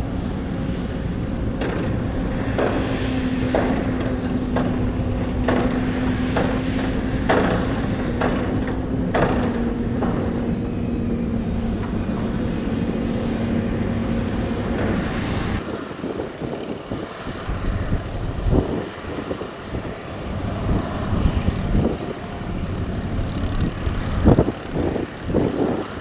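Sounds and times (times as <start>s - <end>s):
excavator diesel engines droning: 0.0s - 26.0s
sharp knocks: 1.6s - 10.6s.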